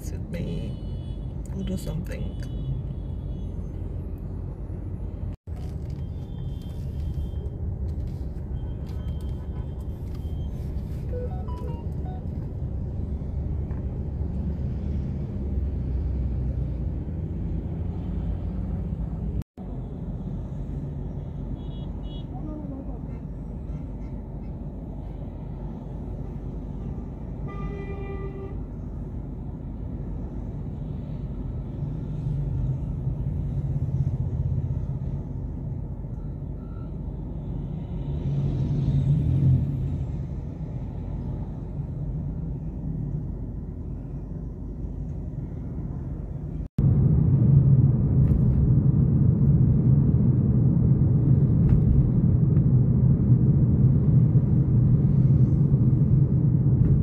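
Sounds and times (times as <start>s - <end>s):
engine and road rumble: 0.0s - 57.0s
car horn: 21.6s - 22.4s, 27.4s - 28.6s.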